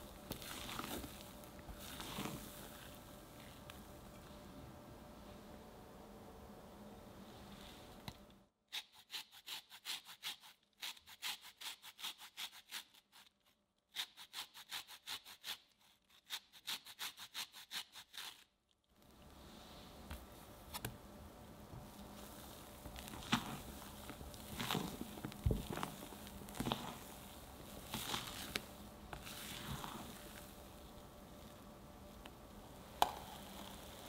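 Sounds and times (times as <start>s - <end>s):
spatula folding batter: 0.0s - 4.3s, 21.8s - 31.6s
zest grated on metal grater: 8.7s - 13.3s.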